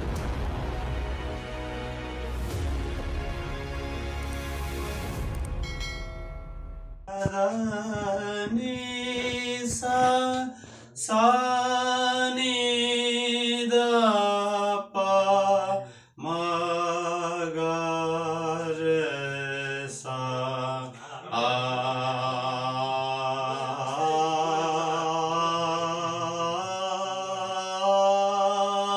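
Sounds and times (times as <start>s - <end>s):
man singing unaccompanied: 7.1s - 28.9s.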